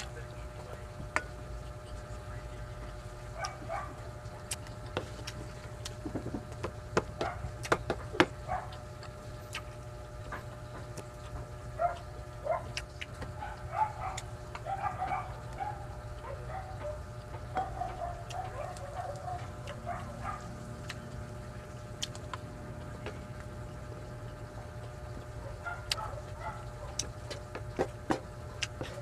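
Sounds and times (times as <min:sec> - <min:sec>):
mouth chewing sounds: 0:00.0 - 0:29.0
steady low hum: 0:00.0 - 0:29.0.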